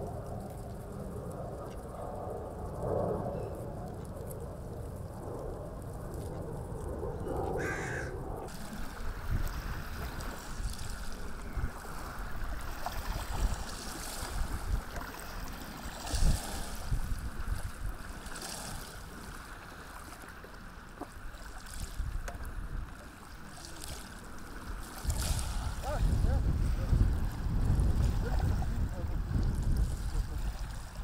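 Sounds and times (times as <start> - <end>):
wind buffeting microphone: 0.0 - 19.6, 20.8 - 31.0
small waves: 0.0 - 31.0
water splashing: 7.6 - 31.0.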